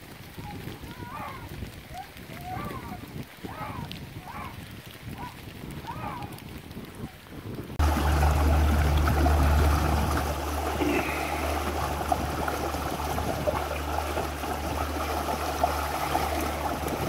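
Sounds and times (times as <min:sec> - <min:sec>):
water rushing along boat hull: 0:00.0 - 0:17.0
low motor hum: 0:07.8 - 0:17.0.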